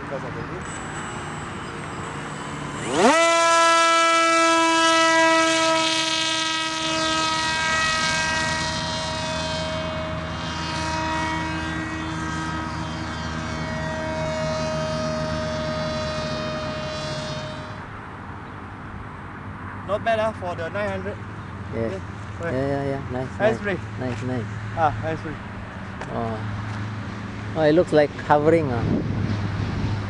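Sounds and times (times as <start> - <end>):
model plane motor whining: 0.7 - 17.8.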